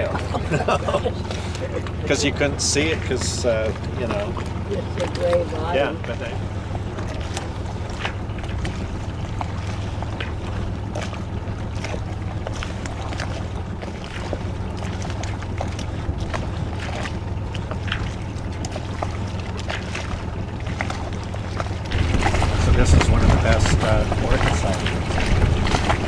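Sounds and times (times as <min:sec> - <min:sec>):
boat motor humming: 0:00.0 - 0:26.0
wind on microphone: 0:21.9 - 0:26.0.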